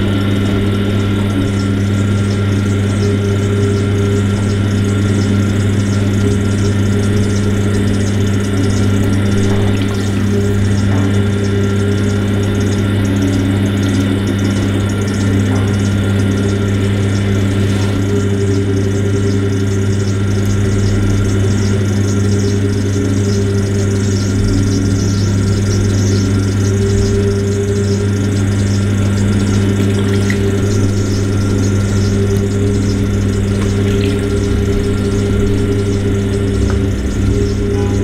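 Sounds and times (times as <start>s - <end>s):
potter's wheel motor hum: 0.0s - 38.0s.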